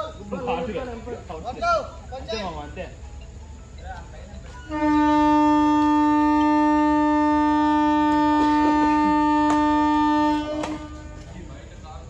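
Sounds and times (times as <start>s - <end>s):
long horn blast: 4.7s - 11.6s.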